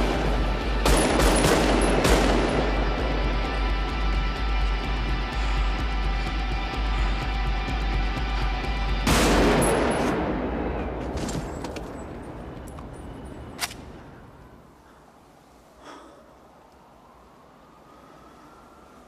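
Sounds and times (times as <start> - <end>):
rifle shot echoing: 0.0 - 3.0, 9.1 - 10.9
soundtrack music: 0.0 - 11.0.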